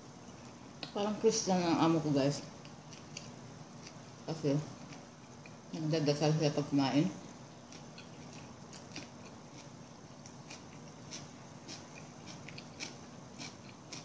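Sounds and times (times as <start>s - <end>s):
faint steady hum: 0.0s - 14.0s
person chewing toast: 2.5s - 4.2s, 4.8s - 5.6s, 7.6s - 14.0s.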